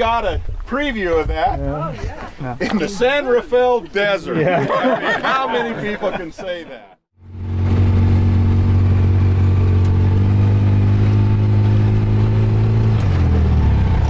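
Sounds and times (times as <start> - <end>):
off-road vehicle engine running: 7.2 - 14.0.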